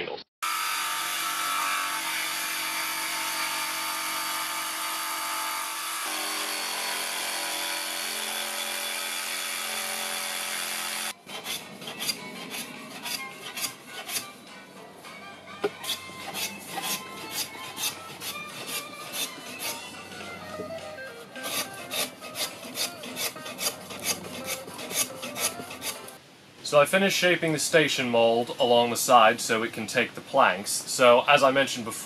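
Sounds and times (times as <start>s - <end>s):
jigsaw cutting wood: 0.4s - 12.2s, 21.4s - 26.0s
rapid rhythmic strokes: 15.6s - 20.2s, 21.2s - 26.2s.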